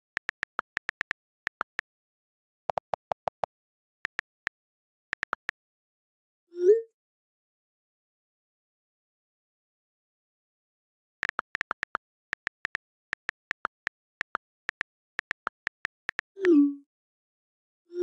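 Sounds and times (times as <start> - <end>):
on-screen keyboard clicks: 0.0 - 1.8, 2.7 - 3.5, 4.1 - 4.5, 5.2 - 5.6, 11.2 - 16.6.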